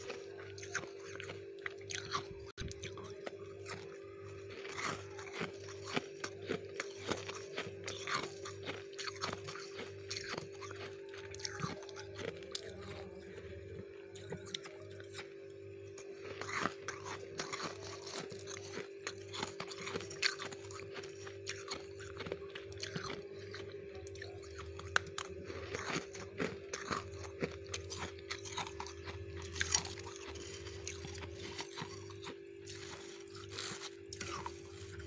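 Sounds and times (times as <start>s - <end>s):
crisp crunches of eating: 0.0s - 35.0s
steady low hum: 0.0s - 35.0s
spoon scraping frost: 27.8s - 35.0s.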